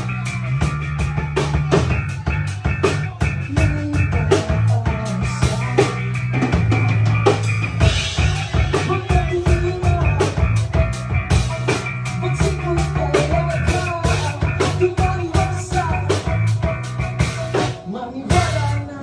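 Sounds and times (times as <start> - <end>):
drum kit beating: 0.0 - 19.0
electric guitar: 0.0 - 19.0
man singing into microphone: 1.3 - 6.2, 8.2 - 10.6, 12.1 - 16.3, 17.8 - 19.0.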